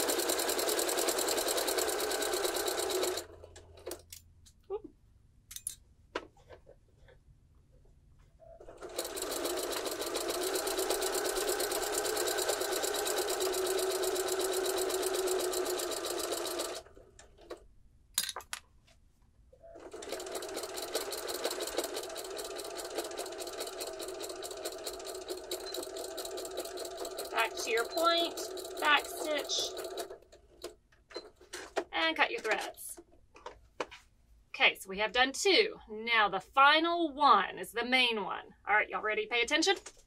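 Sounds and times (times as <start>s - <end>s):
sewing machine stitching: 0.0s - 4.0s, 8.4s - 17.6s, 19.6s - 31.3s.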